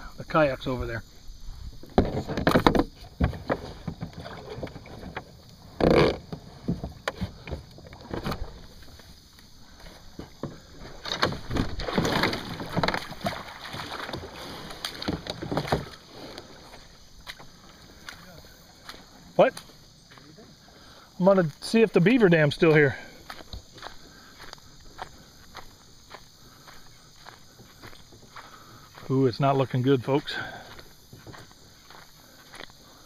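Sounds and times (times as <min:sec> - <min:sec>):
kayak hull scraping over ground: 0:01.2 - 0:20.1.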